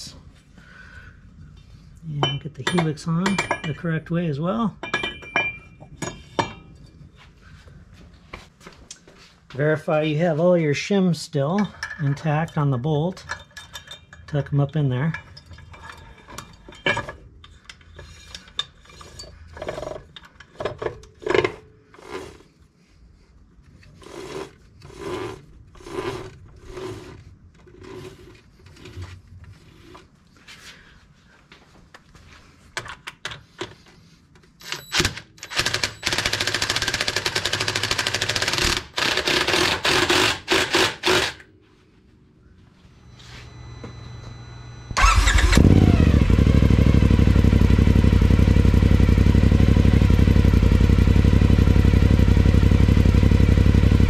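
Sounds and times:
tool scraping strokes: 0:21.9 - 0:30.6
loud power tool bursts: 0:38.4 - 0:41.4, 0:44.9 - 0:46.7.

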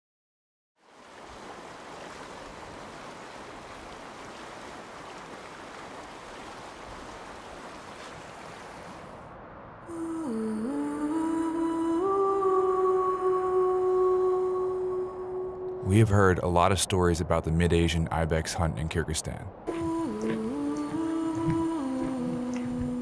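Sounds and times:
outdoor rushing ambience: 0:07.3 - 0:10.9
music with low hummed tone: 0:19.7 - 0:23.0.

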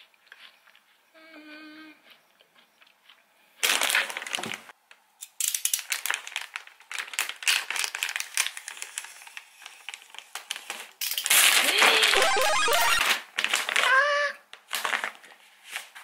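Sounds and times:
plastic bag crinkling: 0:03.6 - 0:04.6, 0:05.7 - 0:12.2, 0:14.7 - 0:15.4.

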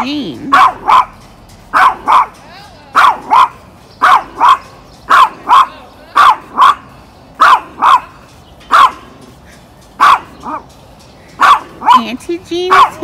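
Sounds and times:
small dog yapping: 0:00.5 - 0:02.3, 0:02.9 - 0:06.8, 0:07.4 - 0:08.1, 0:08.7 - 0:09.1, 0:10.0 - 0:10.6.

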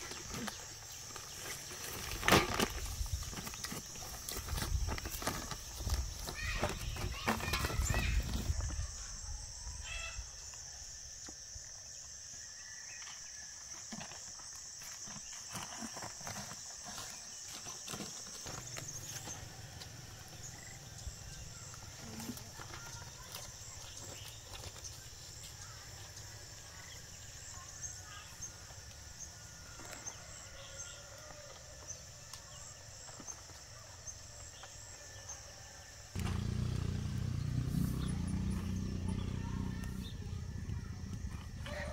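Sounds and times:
high-pitched insect chorus: 0:00.0 - 0:41.9
loud low rumbling noise: 0:36.2 - 0:41.6.

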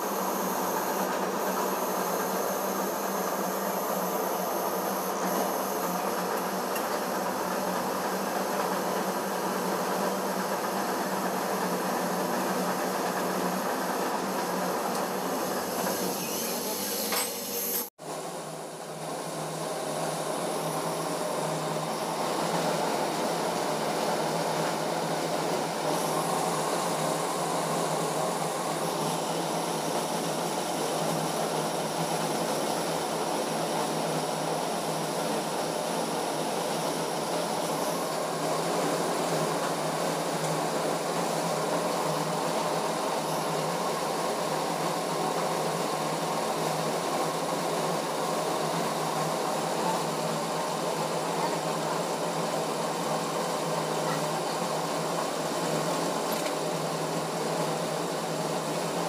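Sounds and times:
test bench mechanical drone: 0:00.0 - 0:06.8, 0:13.6 - 0:33.1.

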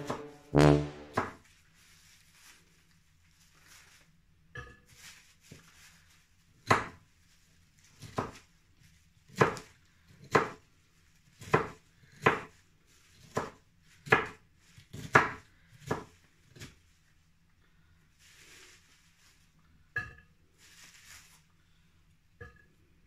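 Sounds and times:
knife chopping on counter: 0:09.3 - 0:10.6, 0:11.4 - 0:12.5, 0:13.2 - 0:16.7.

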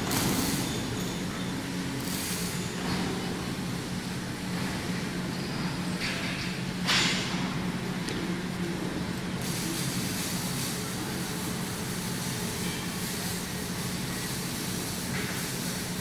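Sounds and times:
machine hum: 0:00.0 - 0:05.3.

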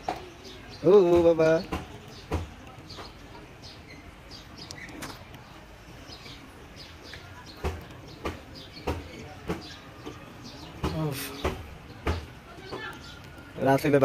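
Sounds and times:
small birds chirping: 0:00.0 - 0:14.0
sharp taps: 0:01.0 - 0:03.3, 0:10.8 - 0:13.6.

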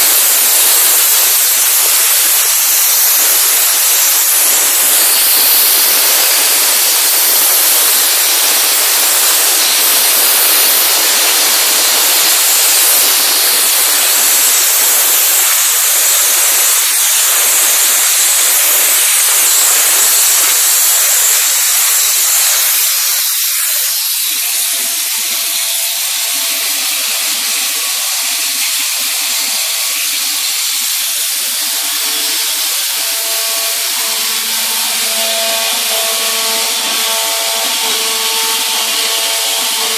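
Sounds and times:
water churning in tank: 0:00.0 - 0:39.9
waterjet cutting hiss: 0:00.0 - 0:39.9.

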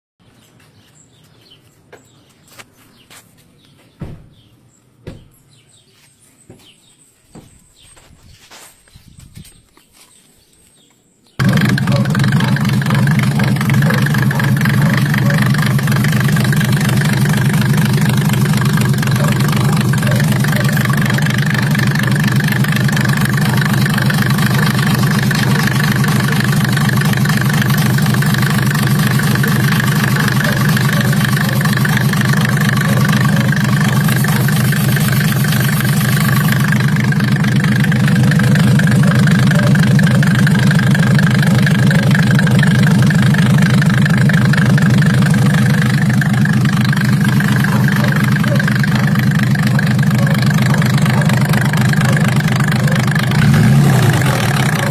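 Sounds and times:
diesel engine idling: 0:11.4 - 0:54.9.

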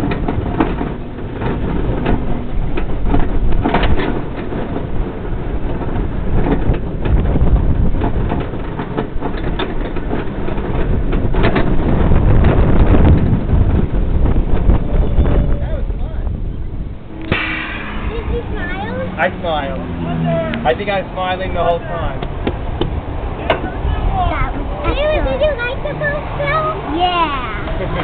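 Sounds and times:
clicks and clatters: 0:00.0 - 0:13.4
roller coaster wheels rumbling: 0:00.0 - 0:28.0
wind rushing over microphone: 0:00.0 - 0:28.0.

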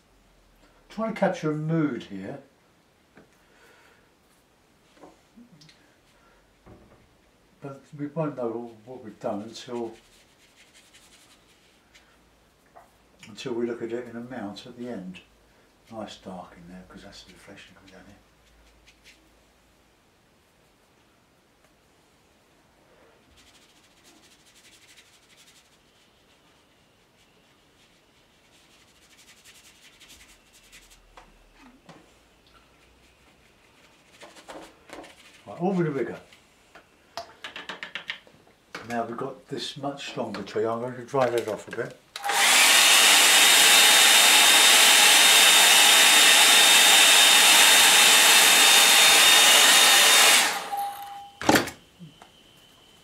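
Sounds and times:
brush rubbing on paper: 0:08.5 - 0:12.2, 0:17.8 - 0:19.4, 0:23.2 - 0:31.7, 0:32.7 - 0:35.8
hair dryer blowing: 0:42.2 - 0:51.3.

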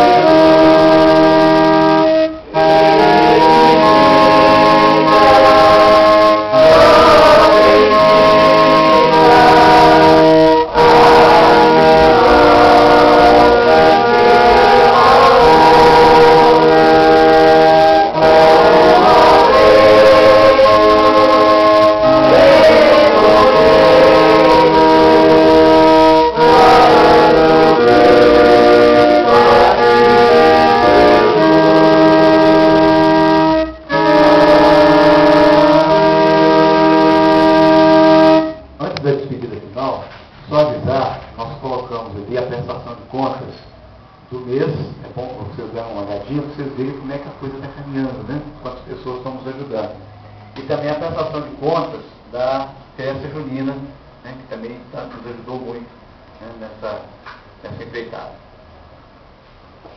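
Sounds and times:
voices singing a hymn: 0:00.0 - 0:38.6
organ chords on keyboard: 0:00.0 - 0:39.3.

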